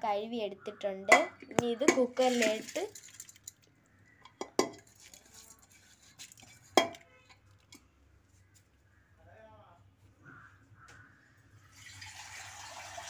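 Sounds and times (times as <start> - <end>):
steel vessels clinking: 1.1 - 7.8.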